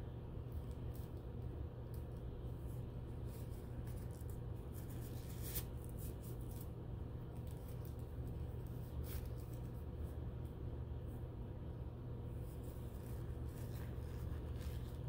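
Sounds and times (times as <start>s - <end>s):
low room hum: 0.0s - 15.0s
gloves rustling: 0.4s - 10.4s, 12.3s - 15.0s
paper wrapper crinkling: 3.1s - 9.8s, 12.4s - 15.0s.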